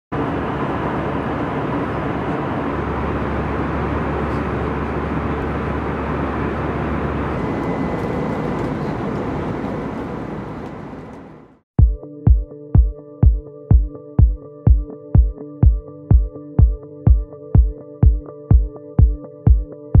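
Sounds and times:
airliner cabin engine noise: 0.1 - 11.6.

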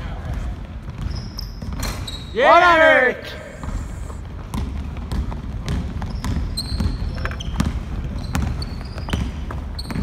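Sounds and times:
sneakers squeaking on floor: 0.0 - 2.6, 3.6 - 10.0
basketball bouncing on hardwood: 4.4 - 10.0.

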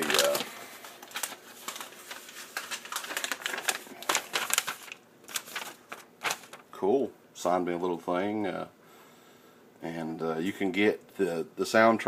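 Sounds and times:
package rustling: 0.0 - 6.8.

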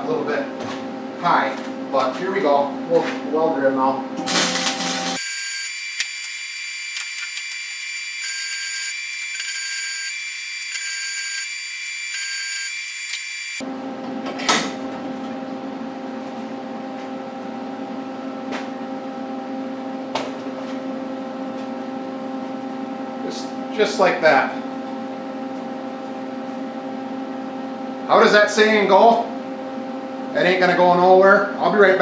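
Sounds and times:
steady machine hum: 0.0 - 14.2
welding arc buzzing: 4.2 - 13.6.

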